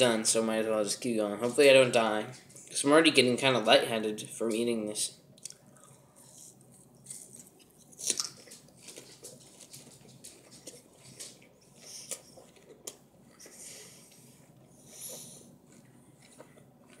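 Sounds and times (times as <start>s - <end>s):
chewing with mouth closed: 5.4s - 17.0s.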